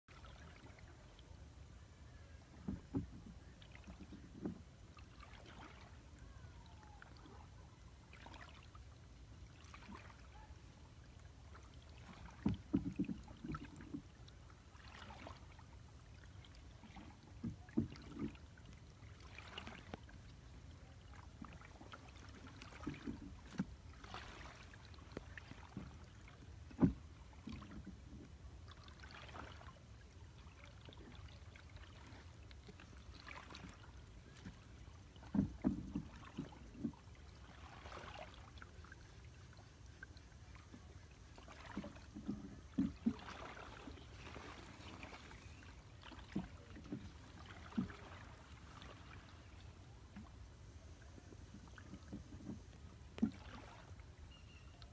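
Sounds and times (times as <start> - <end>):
water splashes: 0.1 - 1.4, 2.1 - 54.9
boat knocks: 2.5 - 4.6, 12.0 - 14.2, 22.3 - 28.3, 33.2 - 38.6, 40.7 - 48.9.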